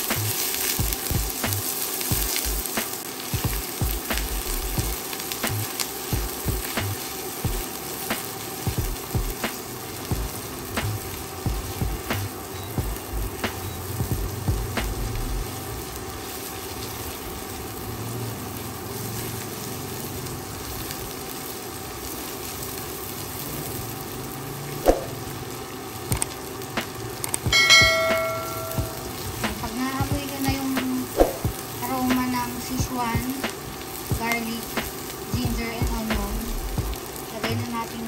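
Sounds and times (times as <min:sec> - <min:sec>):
food sizzling in oil: 0:00.0 - 0:38.0
bell-like ding: 0:27.5 - 0:29.0.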